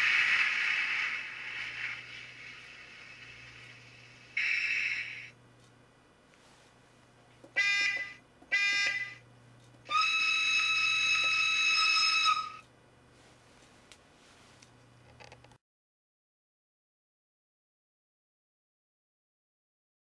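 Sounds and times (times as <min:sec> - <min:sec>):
model train horn toots: 0:07.6 - 0:09.1.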